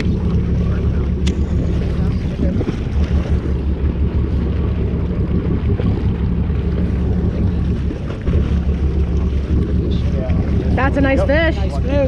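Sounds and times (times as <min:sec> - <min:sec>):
boat engine droning: 0:00.0 - 0:12.0
wind noise on microphone: 0:01.2 - 0:06.0.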